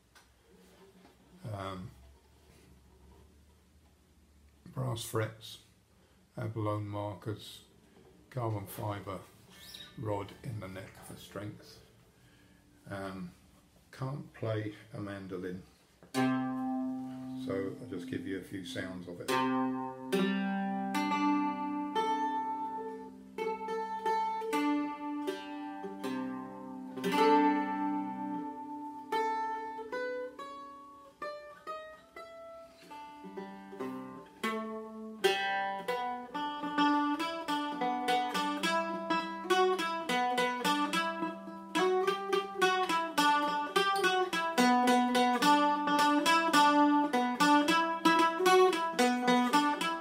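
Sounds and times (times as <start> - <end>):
mandola picked single notes: 16.1 - 50.0
mandola strummed chords: 16.1 - 50.0.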